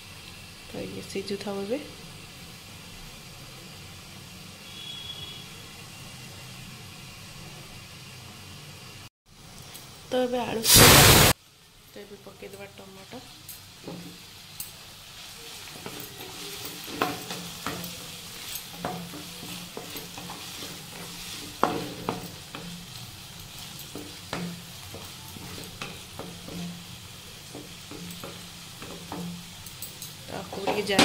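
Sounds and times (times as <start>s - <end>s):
vegetables sizzling in hot oil: 0.0s - 31.0s
wooden spatula scraping a pan: 15.5s - 29.3s.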